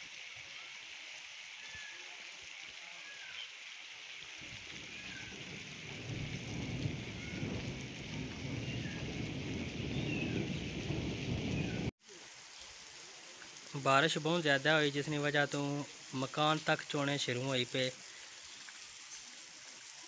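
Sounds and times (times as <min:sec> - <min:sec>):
heavy rain: 0:01.5 - 0:20.0
thunder rumble: 0:04.4 - 0:11.9.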